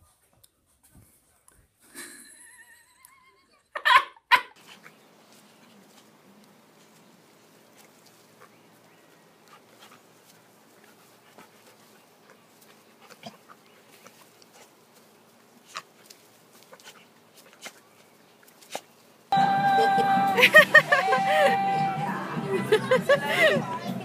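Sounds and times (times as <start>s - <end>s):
dogs play-fighting: 4.6s - 19.0s.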